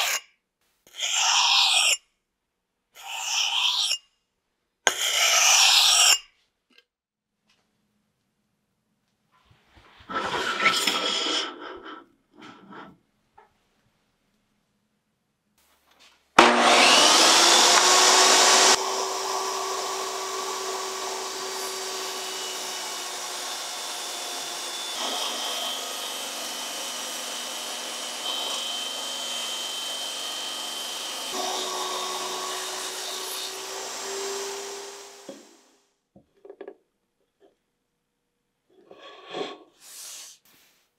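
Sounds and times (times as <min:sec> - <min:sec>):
saw cutting wood: 0:00.9 - 0:02.0, 0:03.0 - 0:04.0, 0:04.9 - 0:06.2, 0:16.4 - 0:35.8
table saw whine: 0:16.4 - 0:35.8.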